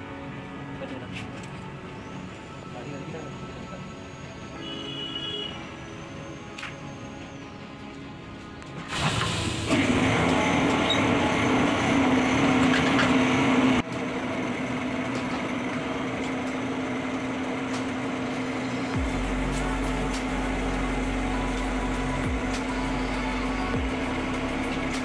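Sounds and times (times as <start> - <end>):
machine humming: 9.1 - 25.0
deeper hum: 18.5 - 25.0.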